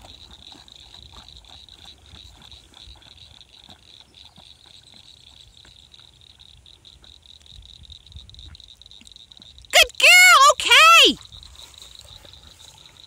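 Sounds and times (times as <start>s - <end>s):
loud pitched call: 9.8s - 11.2s
insects trilling: 11.2s - 13.0s.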